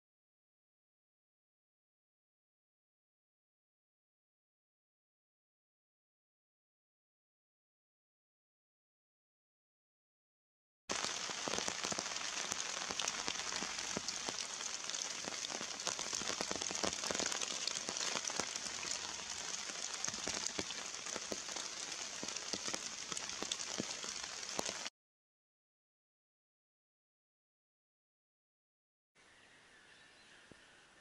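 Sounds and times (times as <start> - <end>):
rain pattering in woodland: 10.9 - 24.9.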